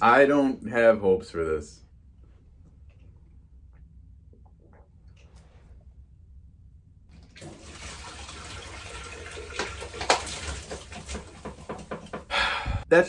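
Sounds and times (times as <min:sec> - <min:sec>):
soda pouring into sink: 0:07.2 - 0:12.2.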